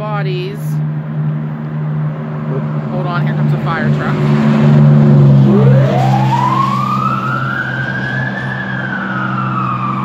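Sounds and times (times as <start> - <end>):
fire truck siren: 4.1 - 10.0.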